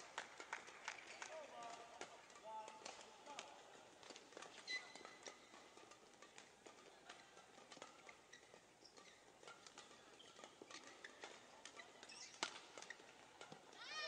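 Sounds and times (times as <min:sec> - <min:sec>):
rackets hitting shuttlecock: 0:00.0 - 0:14.0
shoes squeaking on court: 0:04.0 - 0:13.8.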